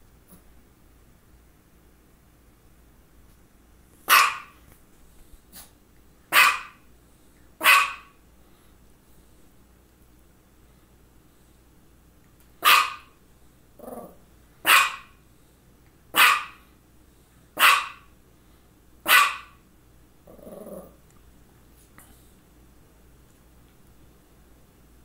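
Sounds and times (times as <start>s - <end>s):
small dog barking: 4.0s - 4.6s, 6.3s - 6.8s, 7.6s - 8.2s, 12.6s - 13.2s, 14.0s - 15.2s, 16.1s - 16.6s, 17.6s - 18.1s, 19.0s - 19.6s.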